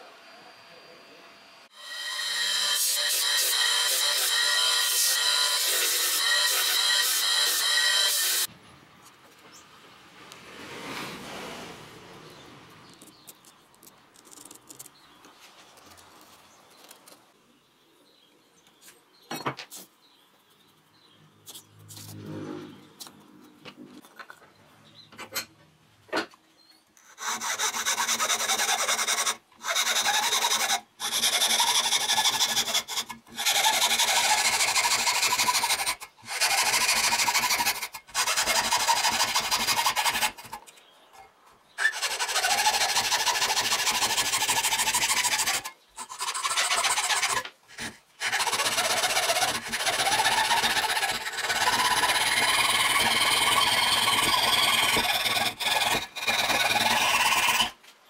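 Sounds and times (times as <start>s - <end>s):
rasp scraping wood: 27.0s - 40.8s, 41.8s - 57.8s.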